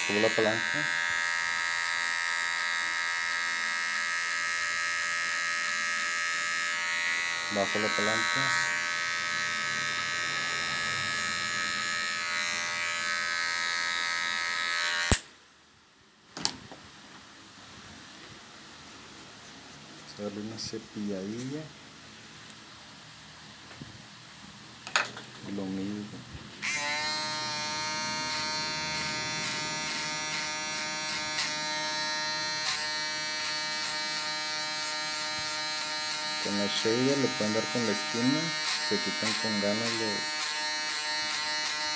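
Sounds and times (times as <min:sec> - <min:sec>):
electric shaver buzzing: 0:00.0 - 0:15.3, 0:26.6 - 0:41.9
hair clipper whining: 0:00.0 - 0:15.3, 0:26.6 - 0:41.9.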